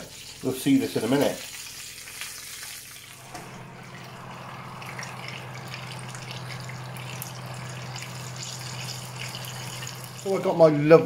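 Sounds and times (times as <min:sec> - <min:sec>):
fat sizzling in a pan: 0:00.0 - 0:10.6
fan oven humming: 0:03.0 - 0:11.0.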